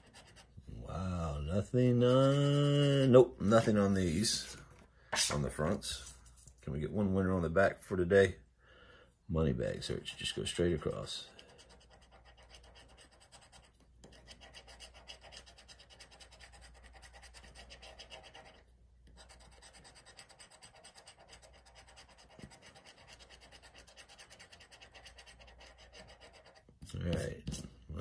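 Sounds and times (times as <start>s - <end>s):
scratching lottery ticket: 0.0s - 0.6s, 1.2s - 3.7s, 10.0s - 27.7s.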